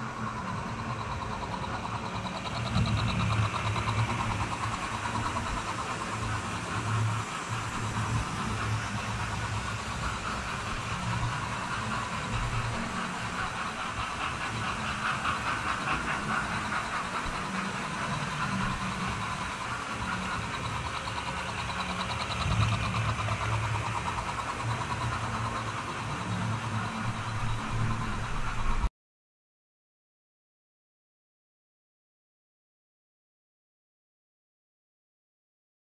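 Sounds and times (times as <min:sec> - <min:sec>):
model train motor whirring: 0:00.0 - 0:28.9
wheels clicking over track: 0:00.0 - 0:28.9.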